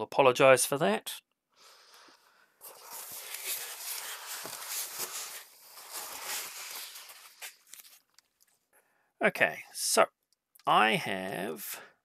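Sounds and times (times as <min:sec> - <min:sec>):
foam packing rustling: 0:02.6 - 0:08.2
plastic bag crinkling: 0:02.7 - 0:08.5.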